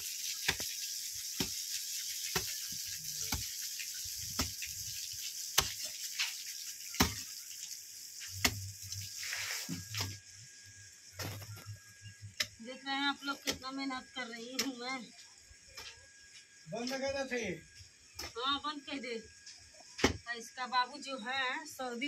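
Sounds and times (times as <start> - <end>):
steady hiss: 0.0 - 13.9.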